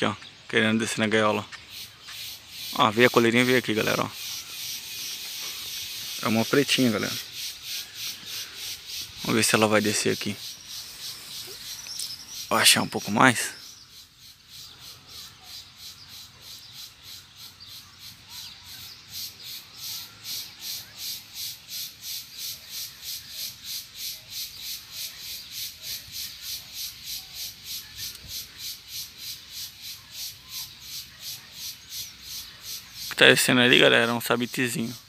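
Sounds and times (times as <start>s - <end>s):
faint bird chirps: 0.0s - 35.0s
pulsing high-pitched insect call: 1.6s - 35.0s.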